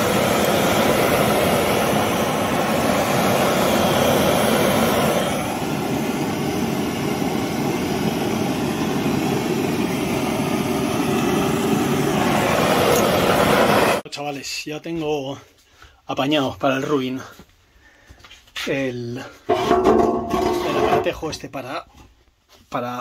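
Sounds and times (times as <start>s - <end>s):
gas blowtorch burning: 0.0s - 14.1s, 19.5s - 21.2s.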